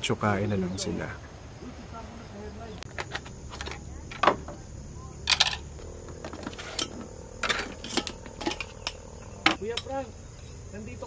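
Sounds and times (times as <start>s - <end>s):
camp stove clacks: 5.2s - 10.6s.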